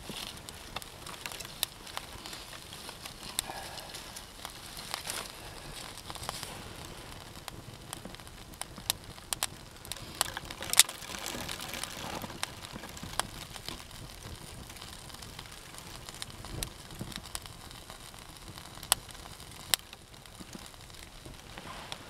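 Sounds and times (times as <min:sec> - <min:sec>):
campfire crackling and popping: 0:00.0 - 0:22.0
kindling rustling: 0:10.0 - 0:13.0.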